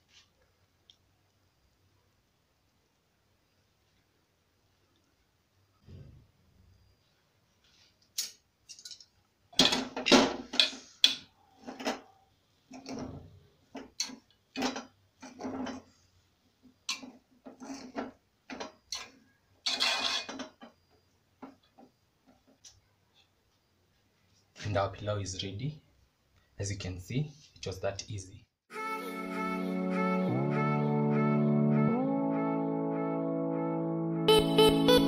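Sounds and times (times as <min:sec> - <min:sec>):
metal spoon scraping pot: 0:16.9 - 0:20.6.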